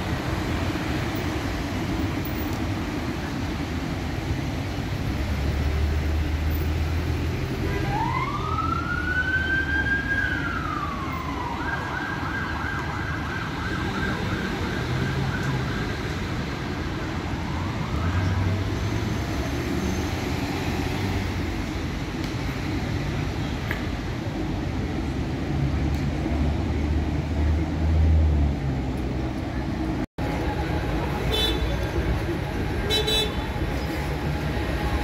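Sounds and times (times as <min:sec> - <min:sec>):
road traffic noise: 0:00.0 - 0:35.0
emergency vehicle siren: 0:07.4 - 0:20.8, 0:30.2 - 0:35.0.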